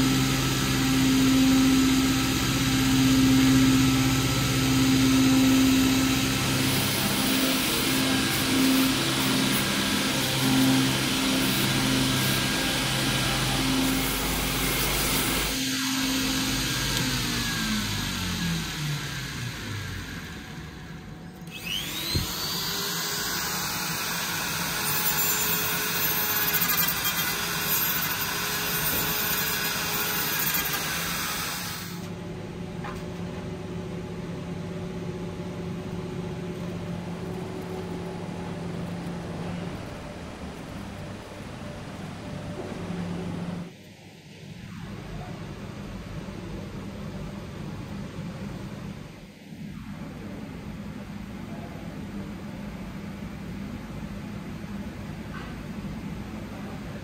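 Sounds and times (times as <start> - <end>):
power tool whining: 0.0 - 32.1
low steady hum: 32.1 - 49.2.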